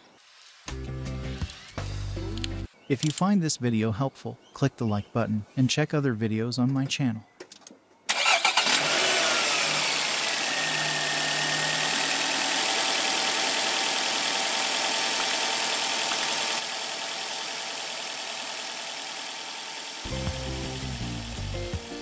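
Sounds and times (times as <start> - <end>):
car engine idling: 8.2 - 21.7.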